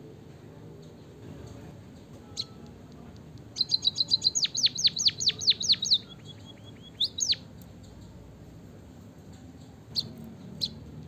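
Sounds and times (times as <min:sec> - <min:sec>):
bird chirping: 0:02.3 - 0:02.6, 0:03.5 - 0:07.5, 0:09.6 - 0:11.0
bird whistling downward notes: 0:03.6 - 0:07.4.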